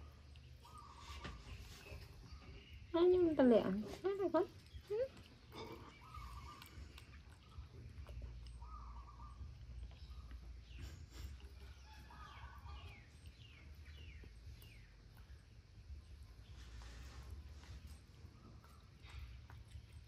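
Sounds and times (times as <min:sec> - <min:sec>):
faint animal calls: 0:04.8 - 0:13.1.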